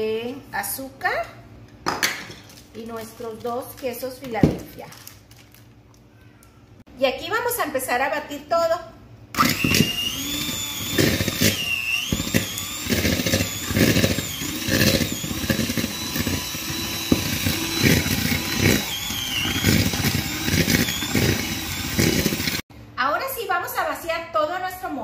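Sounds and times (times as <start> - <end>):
electric hand mixer whining: 9.4 - 22.7.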